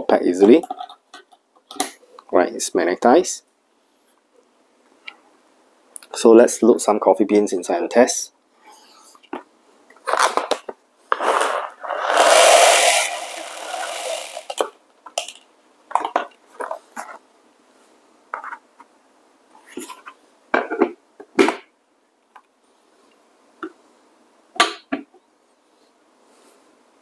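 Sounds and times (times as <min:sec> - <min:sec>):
coffee beans pouring rattle: 0:11.2 - 0:14.7.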